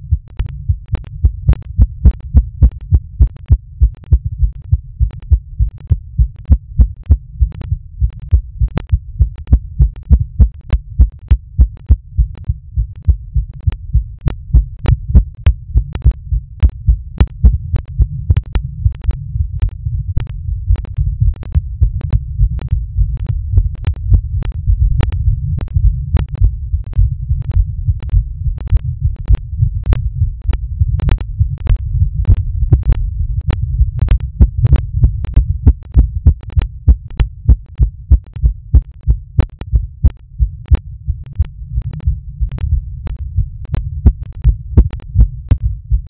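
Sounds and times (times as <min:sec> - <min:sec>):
amplified heartbeat thuds: 0:00.0 - 0:46.0.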